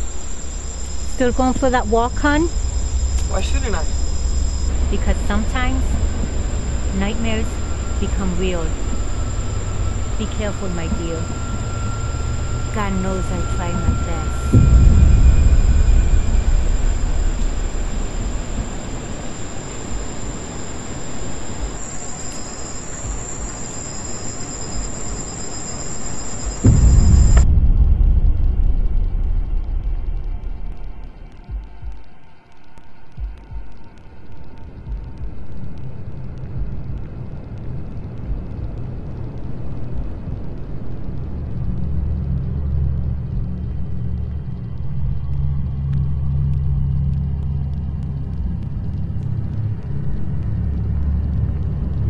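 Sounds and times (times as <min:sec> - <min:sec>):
deep rumble: 0:00.0 - 0:25.4, 0:26.3 - 0:52.0
faint thin high tones: 0:00.0 - 0:31.2
even hiss: 0:00.0 - 0:52.0
rushing noise: 0:00.0 - 0:52.0.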